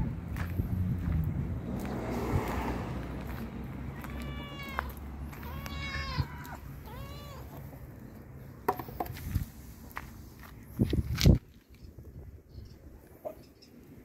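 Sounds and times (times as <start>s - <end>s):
cat meowing: 3.9s - 7.7s.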